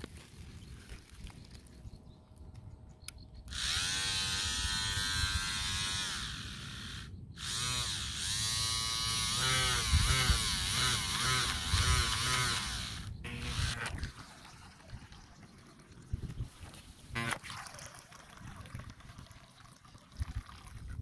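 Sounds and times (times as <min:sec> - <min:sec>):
small motor whining: 0:03.5 - 0:14.2, 0:17.1 - 0:17.4.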